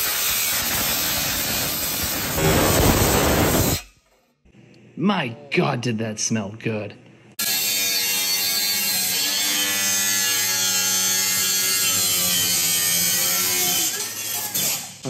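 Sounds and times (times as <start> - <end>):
angle grinder cutting steel pipe: 0.0 - 3.9, 7.4 - 15.0.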